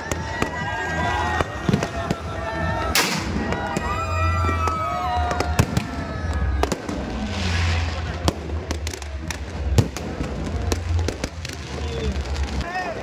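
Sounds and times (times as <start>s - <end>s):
firecrackers cracking: 0.0s - 13.0s
people's voices: 0.0s - 13.0s
hissing firework burst: 5.4s - 12.6s.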